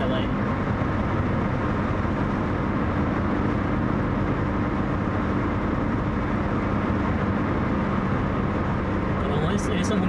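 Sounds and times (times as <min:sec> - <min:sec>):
car engine hum: 0:00.0 - 0:10.0
road noise inside car: 0:00.0 - 0:10.0.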